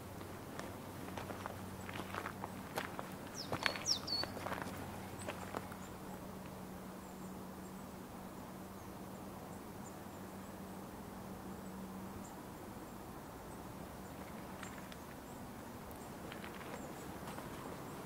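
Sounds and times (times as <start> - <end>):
low steady hum: 0.0 - 18.0
footsteps: 0.2 - 5.8
high chirps: 3.4 - 4.4.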